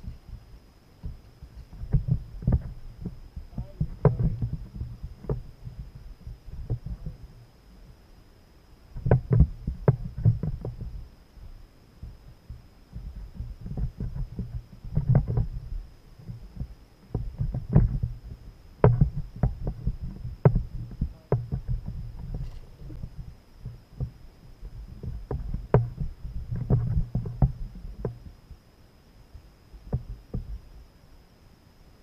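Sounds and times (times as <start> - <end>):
knocks and thumps on plastic kayak: 1.0 - 5.9, 9.0 - 11.0, 12.0 - 28.3, 29.8 - 30.6.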